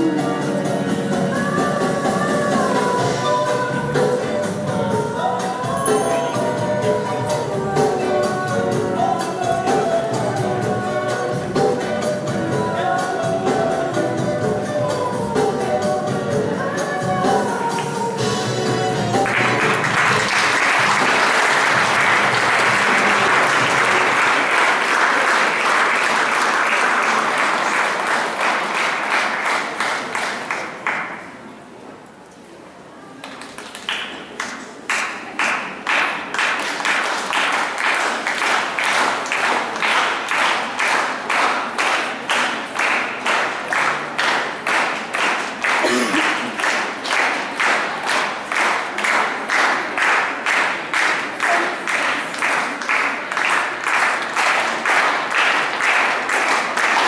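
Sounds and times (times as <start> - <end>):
rhythmic clapping in unison: 0.0 - 31.4, 33.2 - 57.0
audience applause: 19.2 - 31.4, 33.2 - 57.0.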